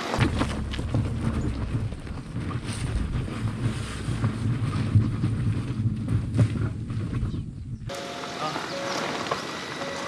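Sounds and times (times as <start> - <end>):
car engine rumbling: 0.0 - 10.0
wind buffeting microphone: 0.2 - 7.9.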